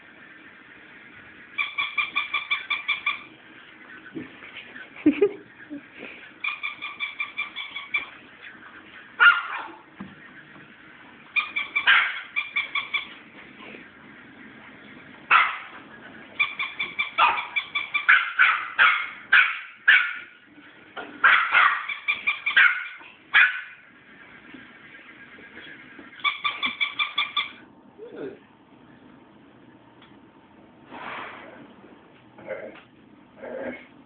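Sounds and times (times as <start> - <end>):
small dogs yipping: 1.6 - 3.3, 6.4 - 8.2, 9.2 - 9.9, 11.3 - 13.2, 15.3 - 15.8, 16.4 - 20.4, 21.2 - 23.8, 26.1 - 27.6.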